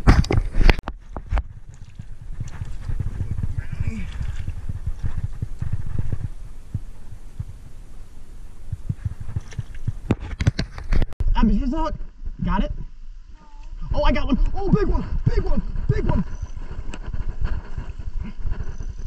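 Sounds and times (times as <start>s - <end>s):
handling thumps and rubbing on camera: 0.0s - 7.6s, 8.7s - 11.2s, 14.7s - 19.0s.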